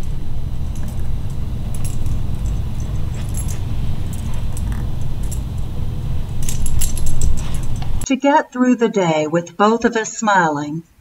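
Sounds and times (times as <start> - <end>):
dog tags jingling: 0.0 - 8.1
steady low rumble: 0.0 - 8.1.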